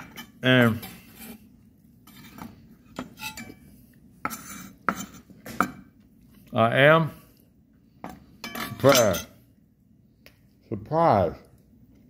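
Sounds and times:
kitchen utensils clinking: 2.1 - 3.7, 8.4 - 9.4.

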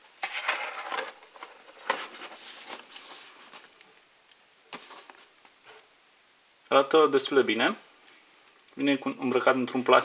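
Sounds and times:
cardboard scrape: 0.2 - 3.6
cardboard rustling: 0.2 - 3.8, 4.7 - 5.4.

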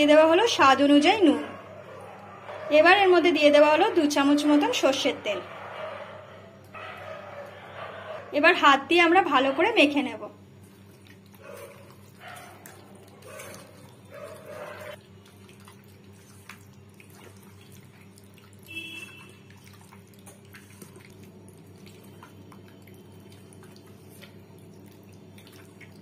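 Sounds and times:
hands squishing wet meat: 10.5 - 26.0.

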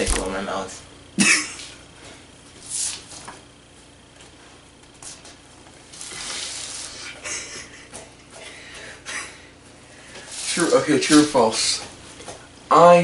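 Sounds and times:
stifled breathy laughter: 7.0 - 9.5.

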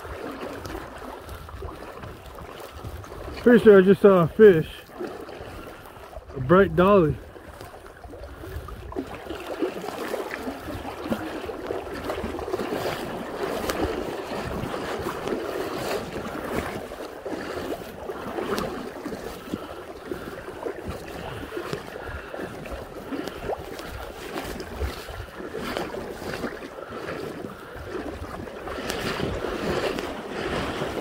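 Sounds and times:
river current rushing and babbling: 0.0 - 31.0.

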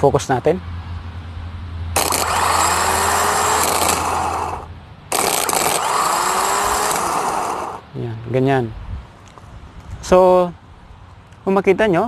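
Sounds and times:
starter motor whirring: 2.0 - 7.8.

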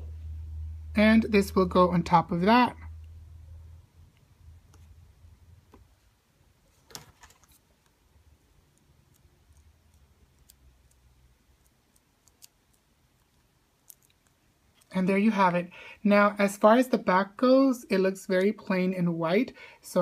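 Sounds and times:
low hum: 0.0 - 6.1
faint clicks and taps: 5.6 - 6.0, 8.6 - 14.9.

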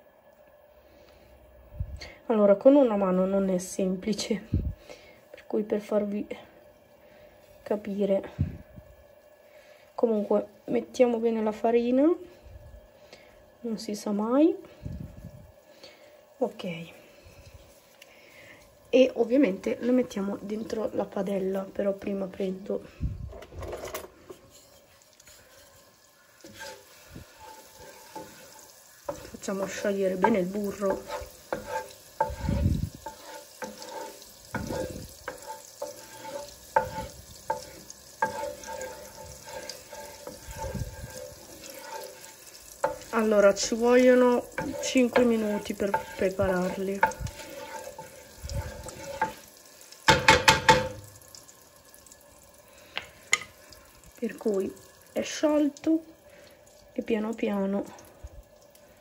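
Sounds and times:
wooden spoon stirring in frying pan: 2.6 - 23.0, 23.6 - 59.0
kitchen handling noise: 23.3 - 24.8
wooden spoon tapping a pan: 29.1 - 42.2, 42.8 - 49.4, 50.1 - 51.1.

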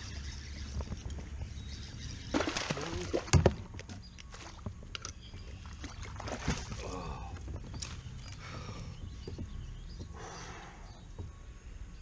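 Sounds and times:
water splashing and sloshing: 2.2 - 8.4.

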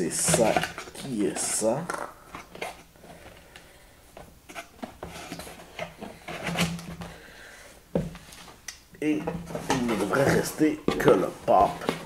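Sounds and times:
cardboard box being handled: 9.2 - 12.0.

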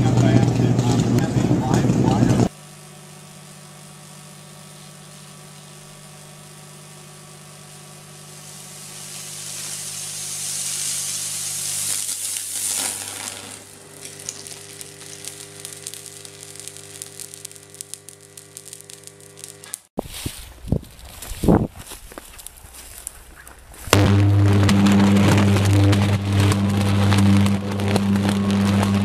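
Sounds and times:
branch crackling as it burns: 2.7 - 20.3, 20.9 - 29.0
electrical sizzling hiss: 3.5 - 20.2
transformer humming: 4.4 - 19.9, 23.7 - 29.0.

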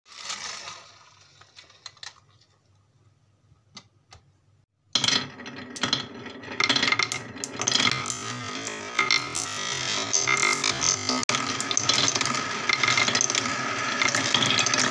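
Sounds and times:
marbles clattering in wooden bowl: 5.0 - 14.9.

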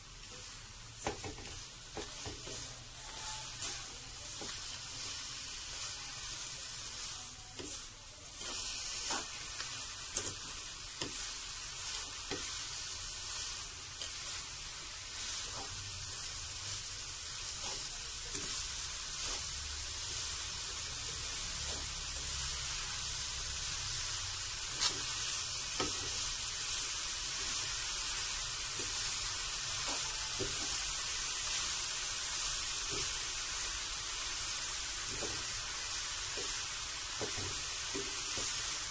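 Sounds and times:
steady hiss: 0.0 - 38.9
wooden spatula scraping a pan: 1.0 - 22.6.

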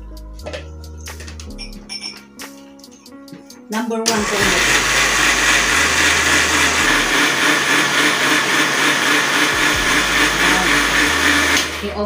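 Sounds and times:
electric blender running: 4.1 - 12.0.

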